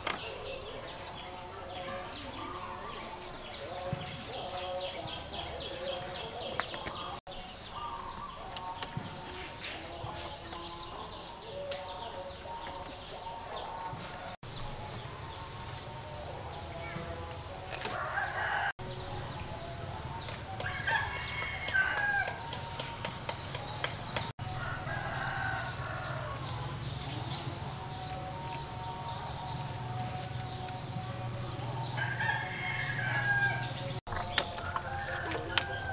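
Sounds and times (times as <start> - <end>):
rooster crowing: 17.9 - 19.0, 20.6 - 22.5, 24.4 - 26.5, 31.8 - 33.8, 34.5 - 35.9
bamboo poles knocking: 20.2 - 24.3, 34.1 - 35.7.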